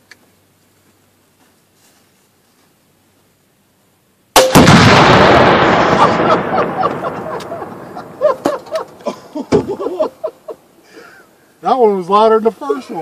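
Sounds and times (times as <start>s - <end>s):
explosion blast with echo: 4.4s - 8.5s.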